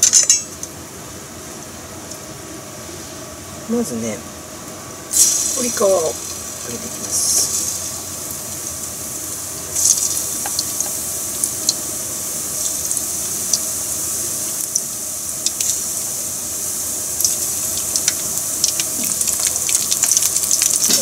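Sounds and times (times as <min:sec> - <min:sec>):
crackles and pops of frying: 0:00.0 - 0:00.8, 0:04.7 - 0:21.0
chicken deep-frying in oil: 0:05.1 - 0:21.0.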